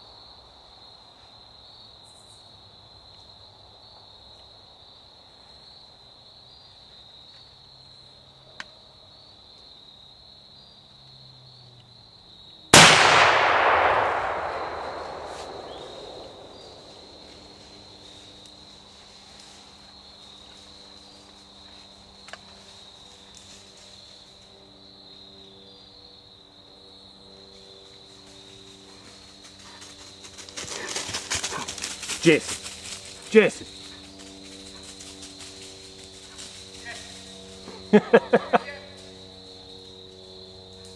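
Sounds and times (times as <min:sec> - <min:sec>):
crickets chirping: 0:00.0 - 0:40.9
loud gunshot echoing: 0:12.8 - 0:17.3.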